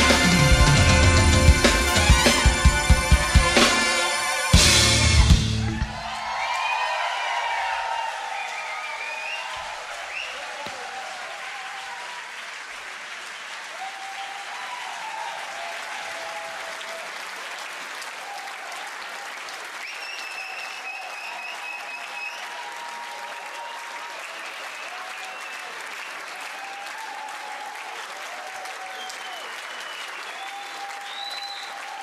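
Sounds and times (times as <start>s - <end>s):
audience applauding and cheering: 0.0s - 32.0s
long high whistle: 8.4s - 10.4s, 19.8s - 25.8s, 28.9s - 32.0s.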